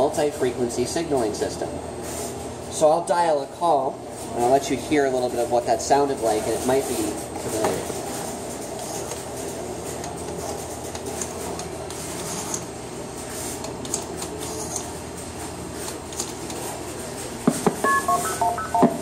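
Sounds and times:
short two-tone signalling beeps: 17.8 - 19.0.

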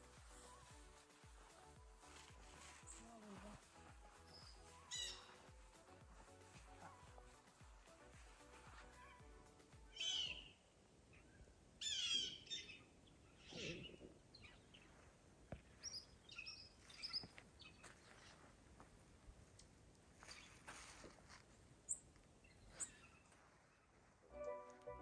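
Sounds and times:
birds calling: 2.6 - 7.5, 9.0 - 10.6, 11.2 - 14.9.

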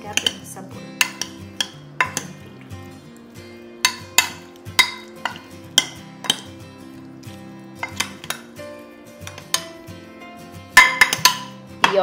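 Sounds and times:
metal spoon clinking on glass dish: 0.1 - 2.4, 3.8 - 6.6, 7.8 - 8.5, 10.8 - 12.0.

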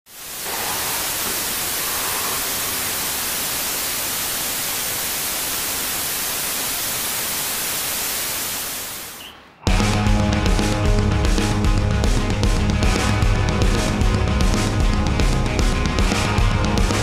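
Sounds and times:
static hiss: 0.1 - 9.7.

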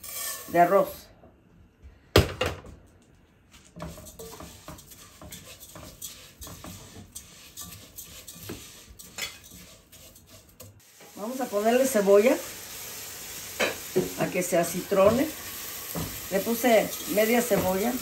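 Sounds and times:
metal spoon scraping cooking pot: 0.0 - 0.8, 3.8 - 10.8.

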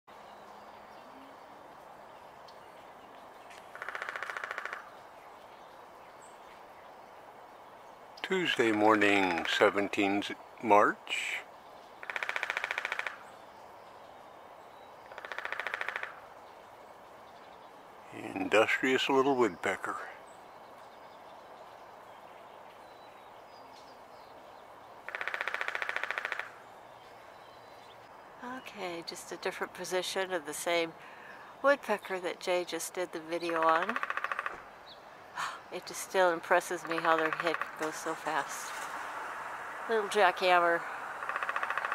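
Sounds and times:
woodpecker drumming on tree: 3.4 - 5.1, 8.2 - 10.3, 11.9 - 13.9, 14.8 - 16.5, 25.0 - 26.7, 33.1 - 35.0, 35.7 - 41.9.

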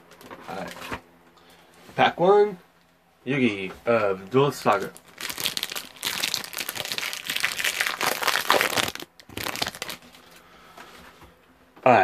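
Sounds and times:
plastic wrapper crinkling: 4.6 - 10.4.

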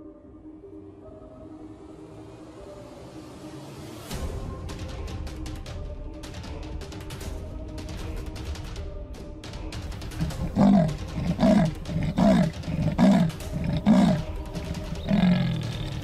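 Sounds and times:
leopard rasping grunts: 10.0 - 16.0.

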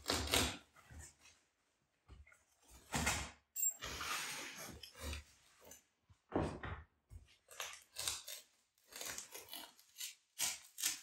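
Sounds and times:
utility knife cutting foam: 0.0 - 0.7, 7.4 - 11.0.

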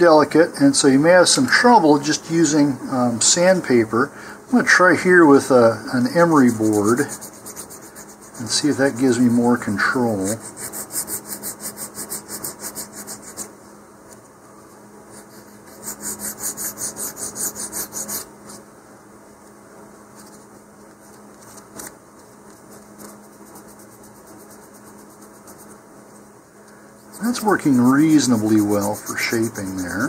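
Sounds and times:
emery board filing: 6.0 - 13.5, 15.1 - 18.3, 27.0 - 30.0.

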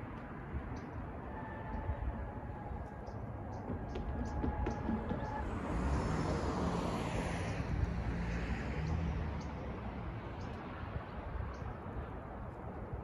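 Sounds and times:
car driving past: 4.5 - 10.2.

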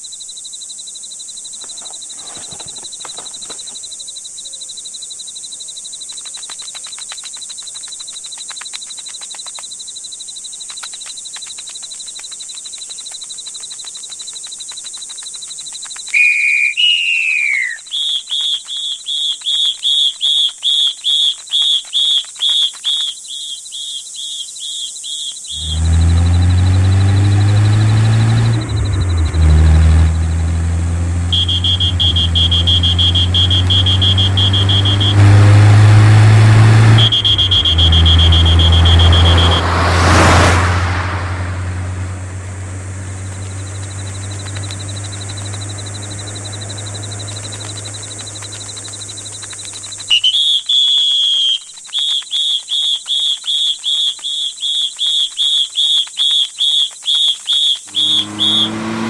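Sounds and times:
high-pitched cartoon chirps: 16.0 - 25.8, 31.4 - 35.2, 43.8 - 58.8
repeating high chirp: 16.1 - 29.4, 31.3 - 35.2, 37.0 - 39.7, 43.1 - 58.8
car engine passing by: 25.6 - 50.1, 57.9 - 59.0.

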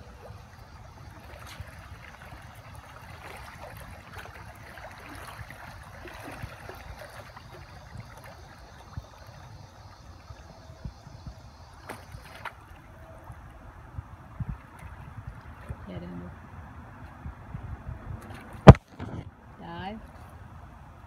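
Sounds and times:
dog paddling in water: 0.0 - 16.4.

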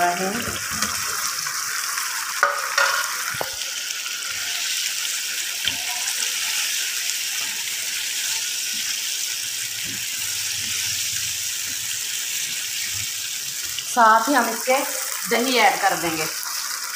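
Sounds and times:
food sizzling in a frying pan: 0.0 - 16.9
wooden spatula knocking on pan: 2.4 - 3.6.

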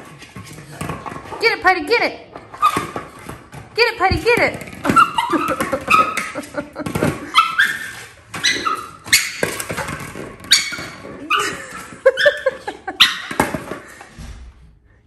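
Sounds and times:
dog whining and yipping: 7.2 - 9.4, 10.5 - 13.4.

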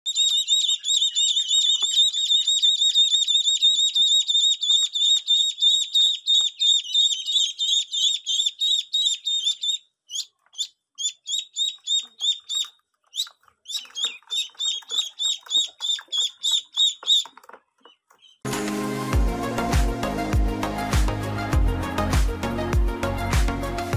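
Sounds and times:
ducklings peeping: 0.1 - 18.4.

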